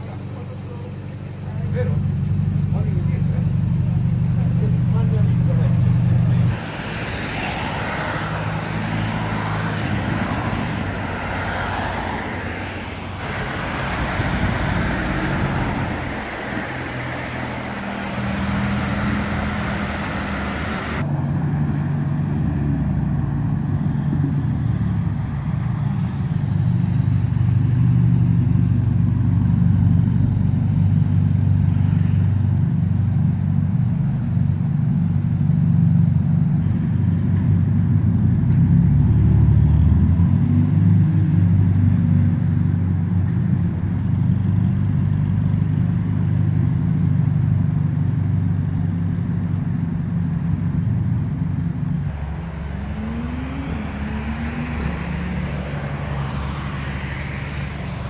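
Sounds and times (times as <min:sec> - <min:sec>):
car engine running: 0:00.0 - 0:21.0, 0:51.2 - 0:58.0.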